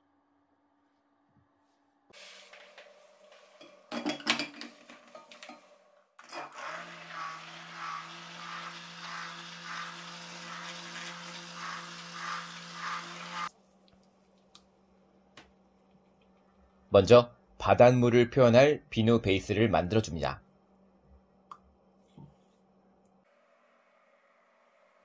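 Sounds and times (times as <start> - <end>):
blender clattering: 2.3 - 13.5
stick blender motor: 6.2 - 13.5.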